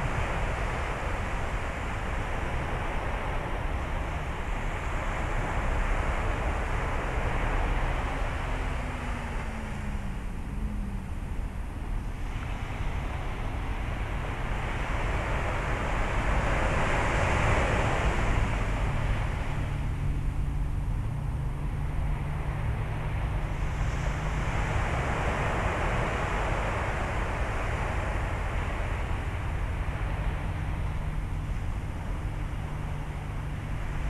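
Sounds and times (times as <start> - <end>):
steady low hum: 0.0 - 34.0
low rumble: 17.8 - 34.0.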